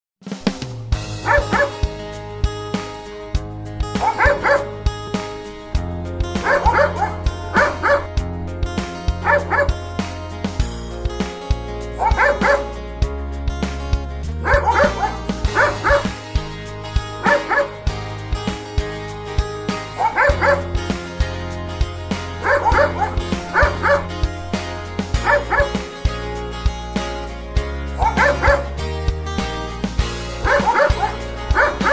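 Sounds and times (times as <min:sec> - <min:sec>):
background music with beat and bass: 0:00.2 - 0:31.9
dogs barking: 0:01.2 - 0:01.9, 0:03.9 - 0:04.9, 0:06.3 - 0:08.2, 0:09.0 - 0:09.8, 0:11.9 - 0:12.8, 0:14.3 - 0:17.9, 0:19.8 - 0:20.9, 0:22.2 - 0:25.9, 0:27.9 - 0:28.8, 0:30.3 - 0:31.9.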